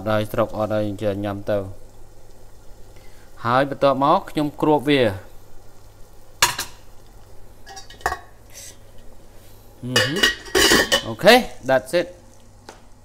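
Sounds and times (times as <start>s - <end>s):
pot lid clattering: 6.4s - 6.8s, 7.6s - 8.4s, 9.9s - 11.2s.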